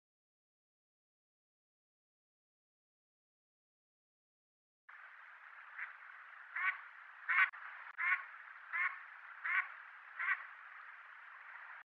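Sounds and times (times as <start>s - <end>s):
steady background hiss: 4.9s - 11.8s
duck quacking: 5.7s - 10.5s.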